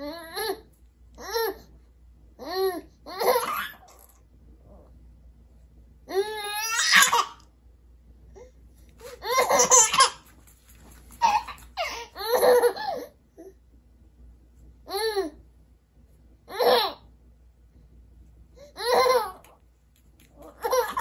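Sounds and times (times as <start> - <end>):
baby laughing: 2.4 - 4.1, 6.1 - 7.4, 9.0 - 10.3, 11.2 - 13.2, 16.5 - 17.1, 18.6 - 19.6, 20.3 - 21.0.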